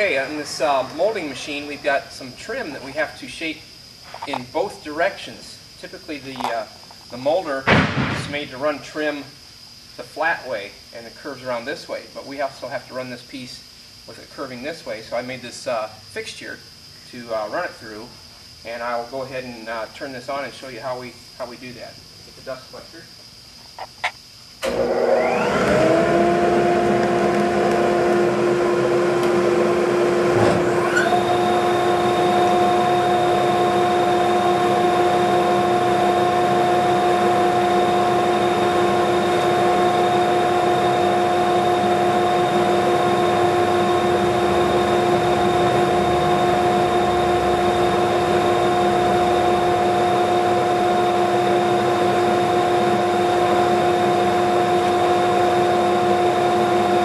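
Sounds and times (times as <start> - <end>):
moulding machine whining: 0.0 - 3.2, 24.6 - 57.0
motor high whine: 0.0 - 4.1, 24.6 - 57.0
dust collector humming: 0.0 - 5.6, 24.6 - 57.0.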